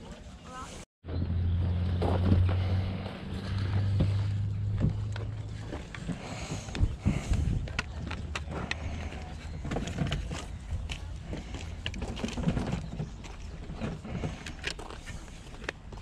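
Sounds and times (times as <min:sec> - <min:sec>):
steady low rumble: 0:01.1 - 0:16.0
plastic cases clicking and knocking: 0:04.7 - 0:16.0.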